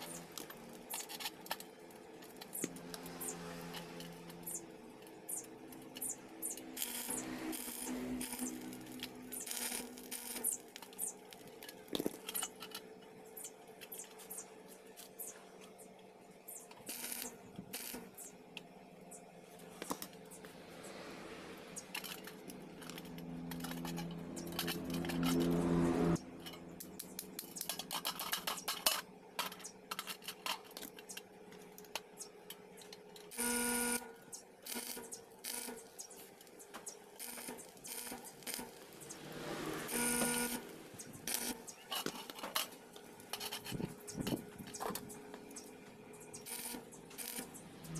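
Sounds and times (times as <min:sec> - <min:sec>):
welding arc crackling: 0:00.0 - 0:12.7, 0:16.8 - 0:18.4, 0:34.6 - 0:41.9, 0:46.4 - 0:47.9
steady electrical hum: 0:00.0 - 0:47.9.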